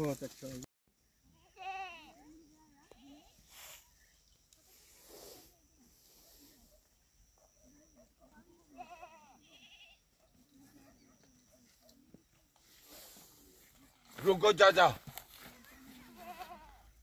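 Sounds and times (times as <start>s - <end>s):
faint goat bleating: 1.3s - 3.5s, 8.6s - 10.2s, 15.9s - 17.0s.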